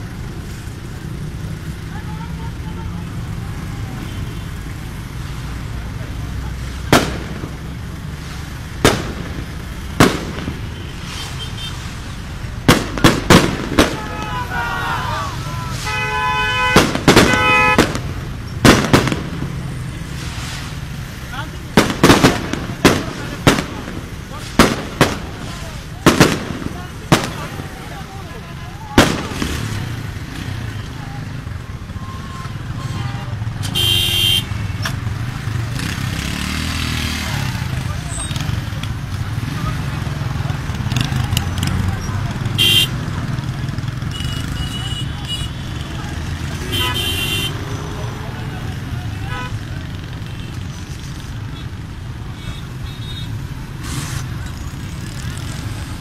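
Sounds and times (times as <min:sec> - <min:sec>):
low crowd and street rumble: 0:00.0 - 0:56.0
loud gunshot bangs: 0:06.9 - 0:07.6, 0:08.8 - 0:10.8, 0:12.6 - 0:14.4, 0:16.7 - 0:19.6, 0:21.8 - 0:27.5, 0:29.0 - 0:30.0
vehicle horn blaring: 0:15.8 - 0:17.8, 0:32.0 - 0:34.5, 0:42.6 - 0:43.0, 0:46.6 - 0:47.6.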